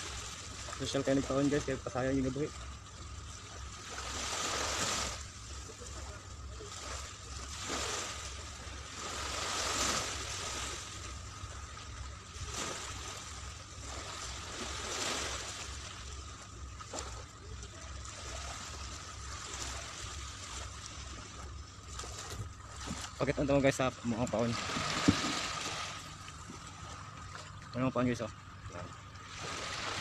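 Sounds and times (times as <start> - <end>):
waves washing onto beach: 3.3 - 26.4.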